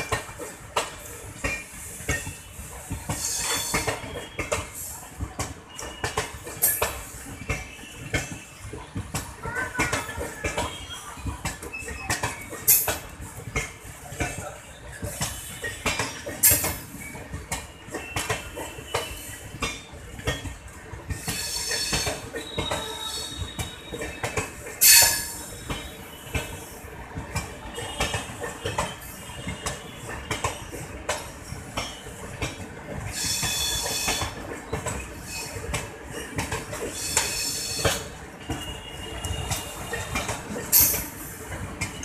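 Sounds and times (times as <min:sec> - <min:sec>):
train wheels clattering over rail joints: 0:00.0 - 0:42.0
metallic wheel squeals: 0:03.2 - 0:04.4, 0:21.2 - 0:26.6, 0:33.1 - 0:34.4, 0:35.0 - 0:35.6, 0:36.9 - 0:41.2.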